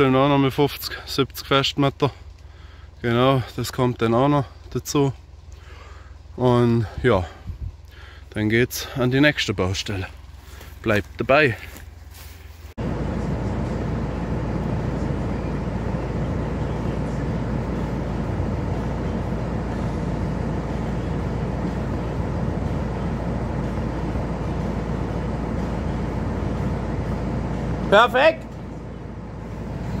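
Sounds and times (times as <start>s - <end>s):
machine noise low rumble: 0.0s - 30.0s.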